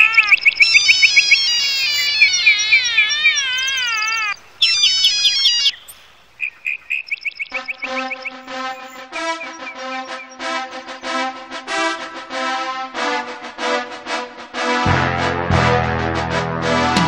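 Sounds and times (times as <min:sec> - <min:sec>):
phone alarm warbling beeps: 0:00.0 - 0:05.8, 0:06.7 - 0:10.5.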